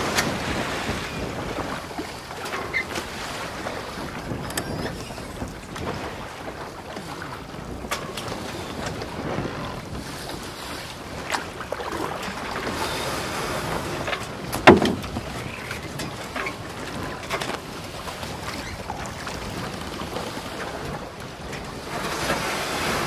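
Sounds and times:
wind on microphone: 0.0s - 23.0s
sharp knocks: 14.6s - 15.2s.

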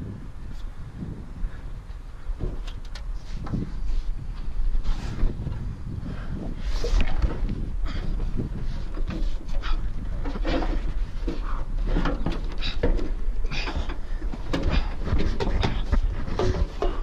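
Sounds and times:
wind rumble on microphone: 0.0s - 17.0s
scuffs and knocks on metal: 6.8s - 17.0s.

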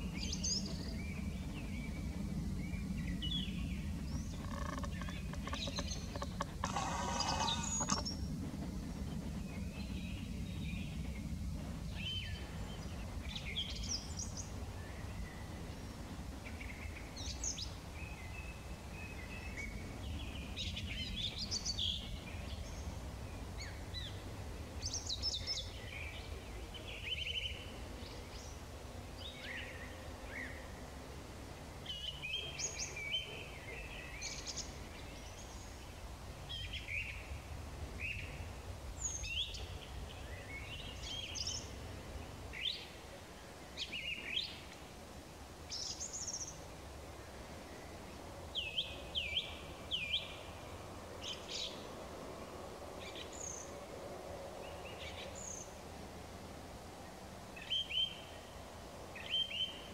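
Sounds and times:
low rumble: 0.0s - 27.1s
songbirds chirping and whistling: 0.0s - 30.8s, 31.8s - 44.8s.

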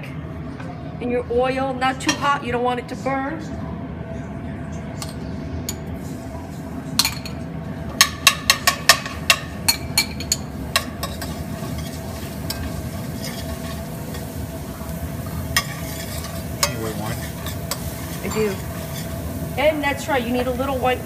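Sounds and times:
metal utensil clinking on pan: 8.0s - 14.3s, 15.6s - 19.1s
garlic sizzling in oil: 9.7s - 21.0s.

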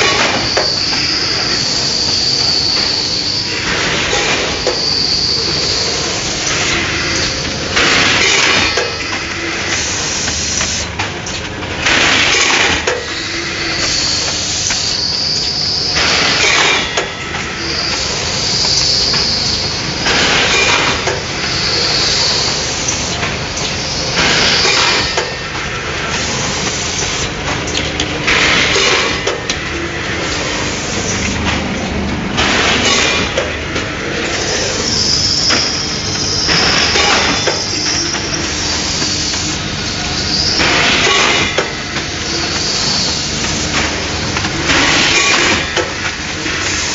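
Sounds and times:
machine mechanical clatter: 0.0s - 46.9s
pneumatic air hissing: 11.9s - 17.0s, 17.6s - 25.4s, 34.4s - 43.7s.

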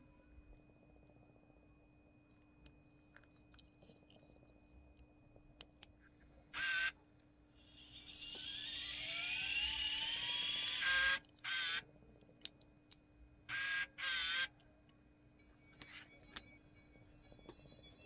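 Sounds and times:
tape mechanism winding whine: 7.6s - 11.8s, 15.4s - 18.0s.

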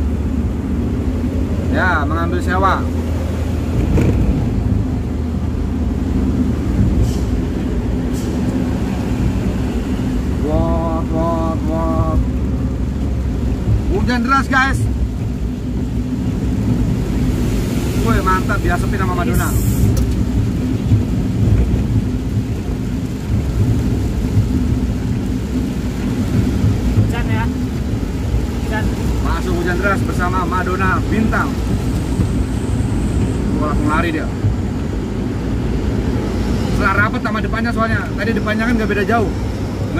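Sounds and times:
bus engine and road noise: 0.0s - 39.9s
vehicle interior rumble: 0.0s - 39.9s.

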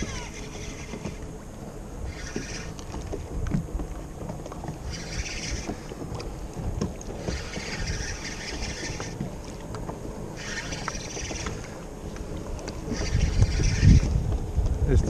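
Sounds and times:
water washing against kayak hull: 0.0s - 14.8s
hissing water rushes: 2.0s - 3.0s, 4.8s - 6.0s, 7.2s - 9.3s, 10.4s - 11.9s, 12.8s - 14.2s
small ticks: 6.9s - 14.1s.

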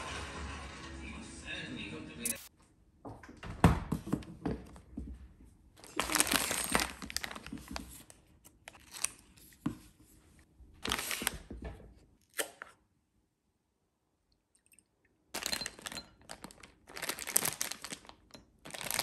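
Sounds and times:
foil lid tearing and crinkling: 15.4s - 19.0s.

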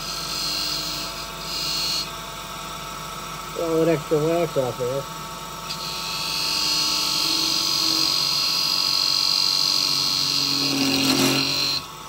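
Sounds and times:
lathe tool cutting wood squeal: 0.0s - 2.1s, 5.7s - 11.9s
lathe motor hum: 0.0s - 12.0s.

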